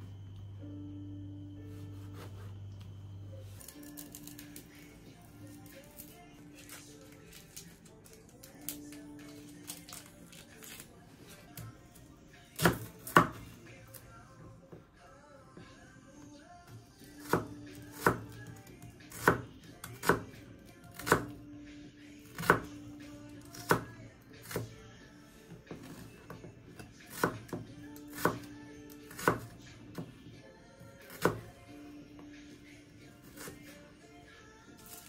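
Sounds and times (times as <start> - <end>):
soft background music: 0.0 - 35.0.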